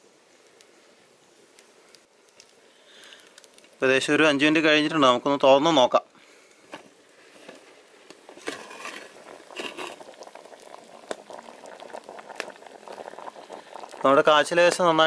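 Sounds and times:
curry boiling in a pot: 6.5 - 15.0
pot lid lifted off: 8.3 - 10.1.

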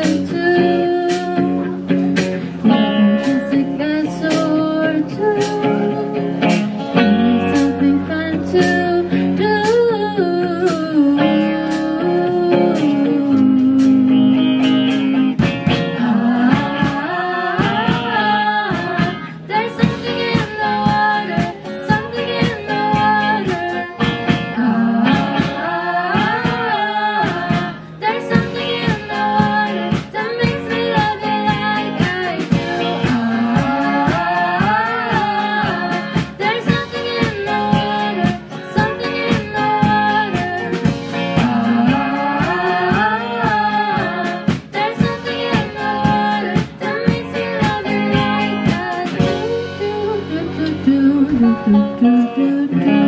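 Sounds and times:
rock band playing: 0.0 - 53.0
several voices singing together: 16.0 - 49.4.

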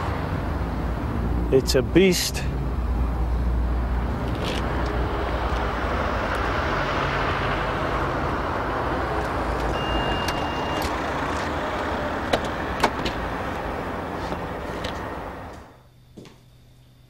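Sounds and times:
low engine hum: 0.0 - 16.1
city street traffic: 0.0 - 16.2
brief high beep: 9.7 - 10.9.

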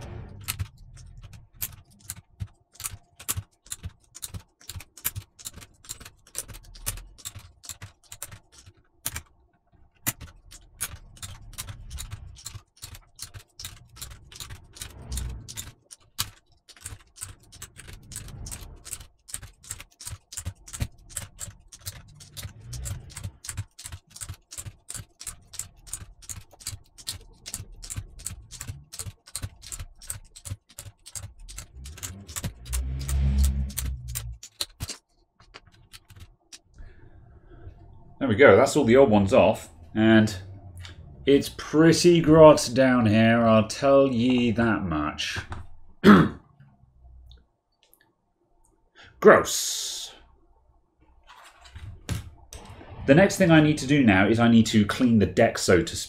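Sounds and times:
keycaps clicking off: 0.4 - 9.4, 10.0 - 36.7.

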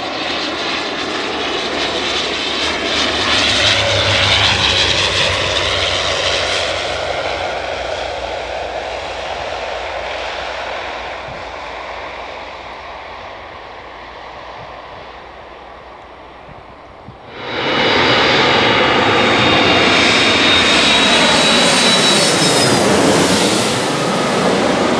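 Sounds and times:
turboprop airliner droning whine: 0.0 - 24.9.

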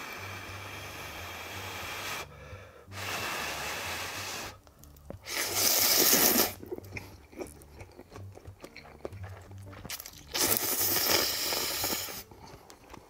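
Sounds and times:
noodles being slurped: 5.2 - 13.0.

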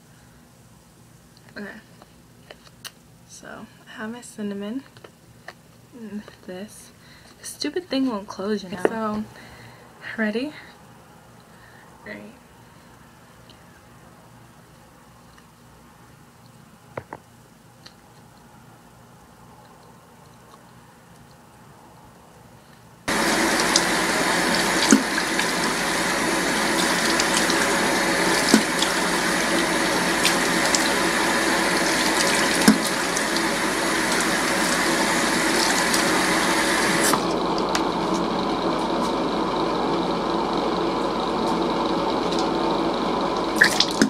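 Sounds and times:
tap running into sink: 23.1 - 25.8, 26.4 - 37.0.

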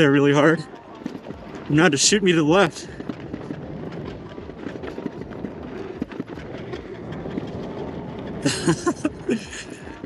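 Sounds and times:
small crackles and clicks: 0.6 - 8.4.

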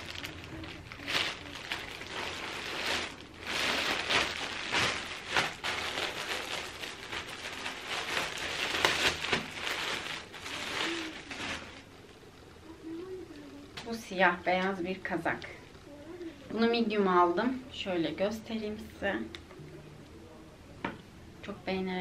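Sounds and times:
plastic bag crinkling and tearing: 0.0 - 11.9.

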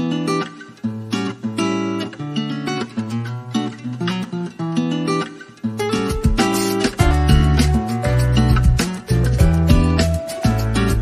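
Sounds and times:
acoustic guitar strumming chords: 0.0 - 11.0.

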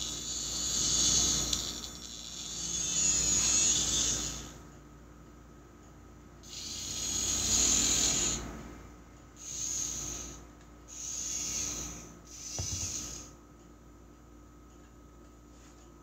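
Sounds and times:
small electric motors whirring: 0.0 - 4.6, 6.4 - 8.4, 9.4 - 13.3.

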